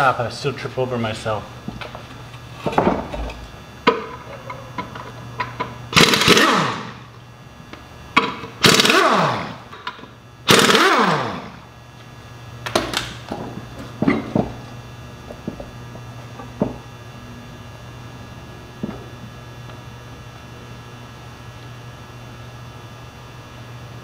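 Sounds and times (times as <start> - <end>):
pneumatic impact wrench: 5.9 - 7.1, 8.2 - 11.6.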